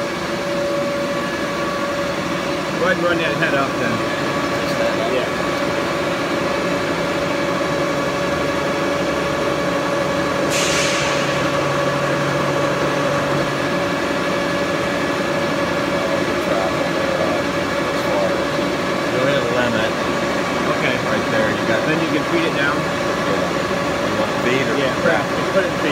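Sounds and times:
lathe mechanical hum: 0:00.0 - 0:25.9
short hiss: 0:10.5 - 0:11.2.

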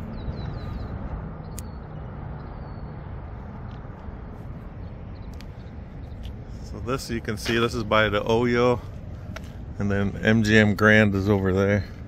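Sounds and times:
distant city traffic rumble: 0:00.0 - 0:12.0
sharp faint clicks: 0:01.5 - 0:01.8, 0:05.3 - 0:06.4.

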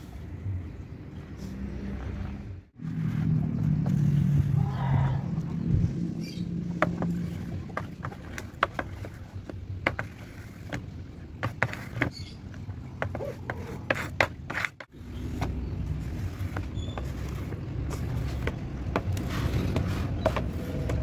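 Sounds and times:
low rumble: 0:02.3 - 0:07.7.

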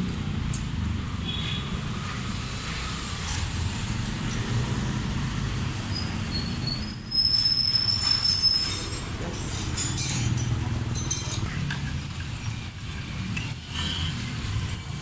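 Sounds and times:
road traffic rumbling: 0:00.0 - 0:15.0
brief high squeal: 0:06.0 - 0:09.0.

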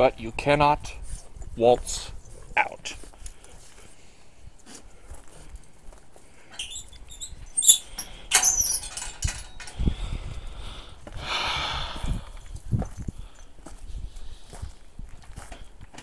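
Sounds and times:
squeaking gate hinges: 0:06.5 - 0:09.8
metal gate latch clink: 0:06.6 - 0:09.8.

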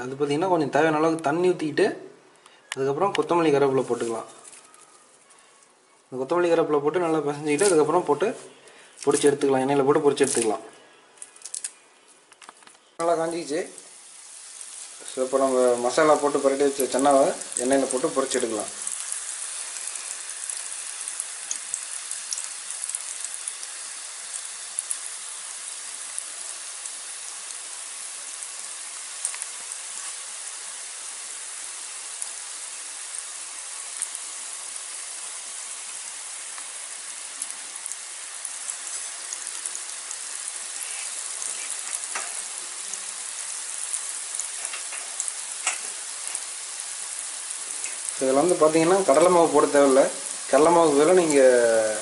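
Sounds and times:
chickpeas deep-frying in oil: 0:02.4 - 0:12.0, 0:12.6 - 0:52.0
sharp crackles and pops: 0:11.2 - 0:31.1, 0:32.1 - 0:49.3.

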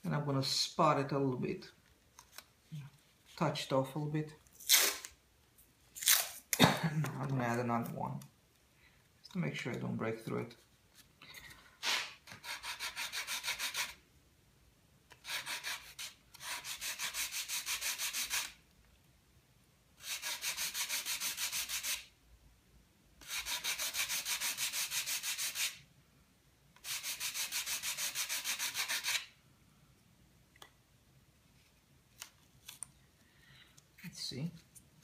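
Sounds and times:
sandpaper rubbing on wood: 0:11.8 - 0:14.0, 0:15.2 - 0:18.6, 0:20.0 - 0:22.1, 0:23.2 - 0:25.8, 0:26.8 - 0:29.3.

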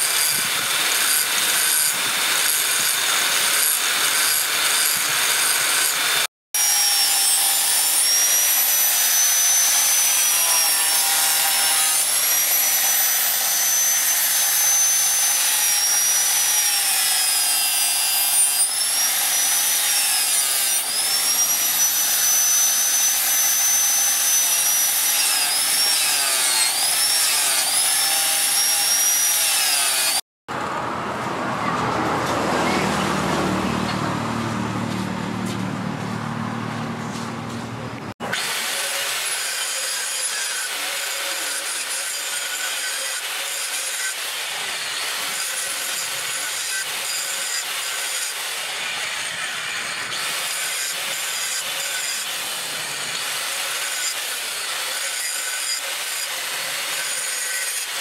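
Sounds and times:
angle grinder grinding steel: 0:00.0 - 0:30.2, 0:38.2 - 0:58.0
sanding disc sanding blade: 0:38.4 - 0:58.0.

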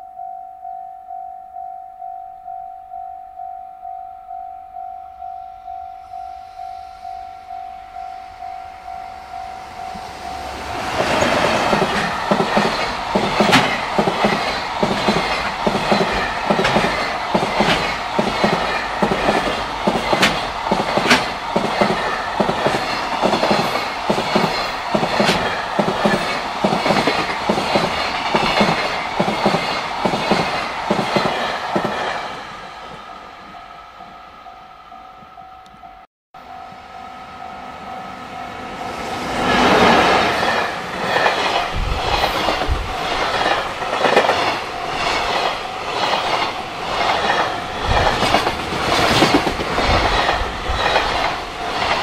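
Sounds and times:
level crossing bell ringing: 0:00.0 - 0:10.6
freight train passing: 0:04.3 - 0:52.0
wheels clacking over rail joints: 0:09.9 - 0:32.4, 0:39.4 - 0:52.0.

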